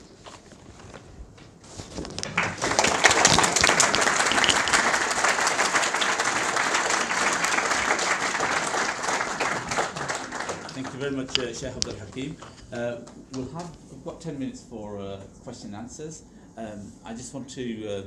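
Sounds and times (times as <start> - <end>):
audience applauding: 2.2 - 13.4.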